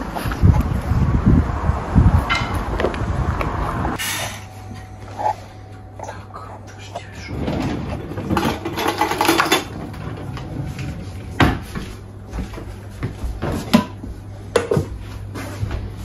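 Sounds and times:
dishes and utensils clattering: 0:07.3 - 0:10.8.

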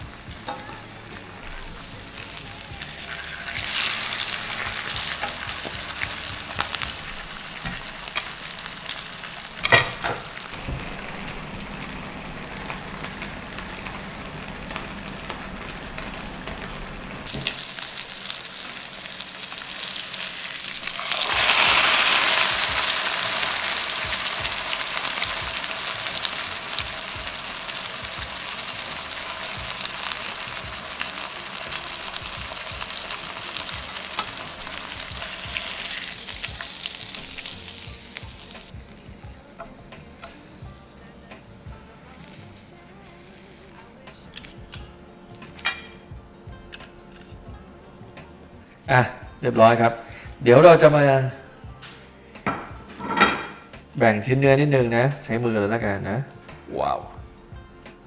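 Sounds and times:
fish sizzling in hot oil: 0:00.0 - 0:44.3.

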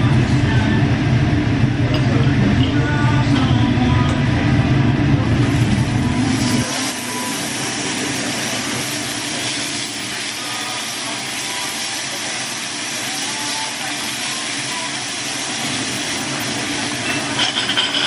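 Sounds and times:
meat sizzling on a grill plate: 0:05.4 - 0:18.0.

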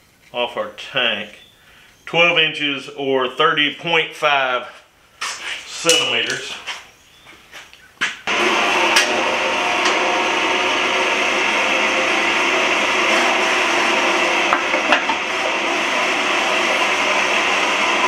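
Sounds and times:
bandsaw cutting through steel: 0:08.3 - 0:18.0.

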